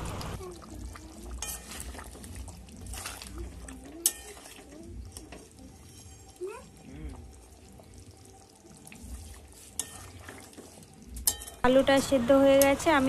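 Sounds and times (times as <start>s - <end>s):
metal spoon scraping pan: 1.3s - 6.8s, 9.0s - 11.6s.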